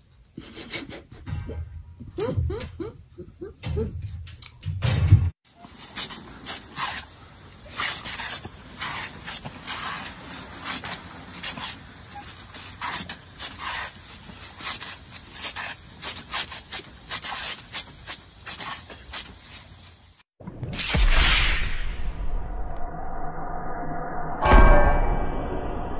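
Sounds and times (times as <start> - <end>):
water sprinkler spraying: 5.5 - 20.3.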